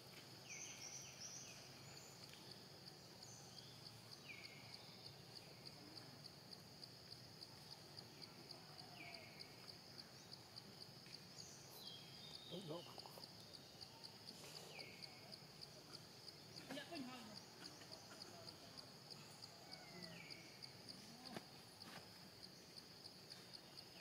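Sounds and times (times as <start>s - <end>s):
insect trilling: 0.4s - 21.7s.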